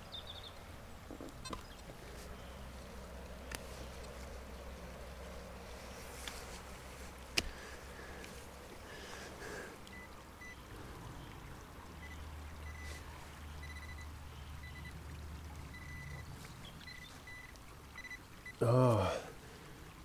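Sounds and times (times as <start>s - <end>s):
running stream water: 0.0s - 20.0s
high electronic beeps: 15.7s - 16.2s.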